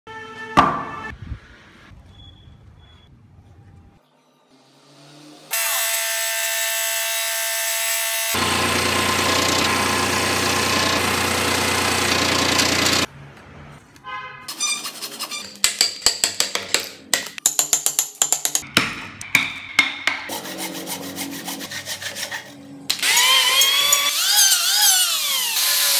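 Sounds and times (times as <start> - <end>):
power tool cutting wood: 4.6 - 13.1, 22.9 - 25.9.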